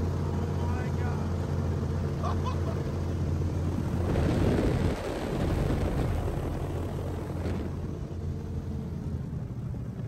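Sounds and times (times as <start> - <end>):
hovercraft engine drone: 0.0 - 10.0
wind noise rushing: 3.6 - 8.0.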